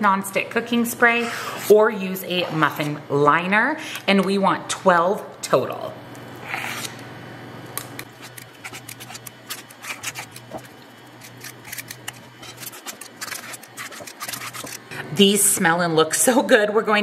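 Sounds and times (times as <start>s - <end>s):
metal scoop scraping batter: 8.0s - 14.8s.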